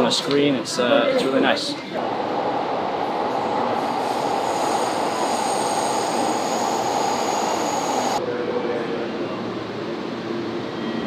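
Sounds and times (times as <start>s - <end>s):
train rumble and hiss: 1.8s - 11.0s
faint high whines: 2.0s - 11.0s.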